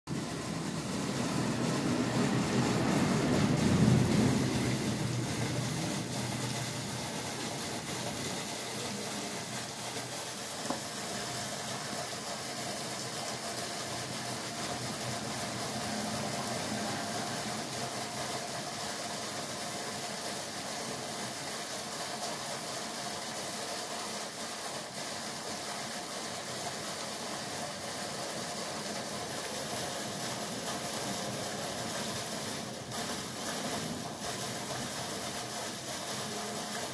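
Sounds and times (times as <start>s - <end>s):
low rumble: 1.1s - 6.9s.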